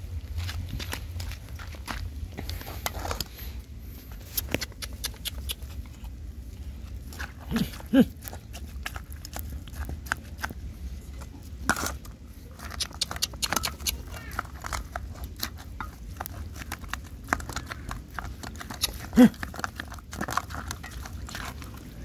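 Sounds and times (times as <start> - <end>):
clicks and scuffs around food bowls: 0.0 - 22.0.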